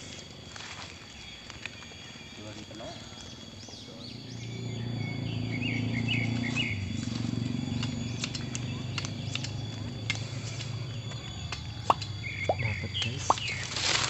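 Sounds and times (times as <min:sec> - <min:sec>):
dry leaves and twigs crackling: 0:00.0 - 0:03.9, 0:06.2 - 0:14.0
low forest drone: 0:00.0 - 0:14.0
small birds chirping: 0:00.0 - 0:14.0.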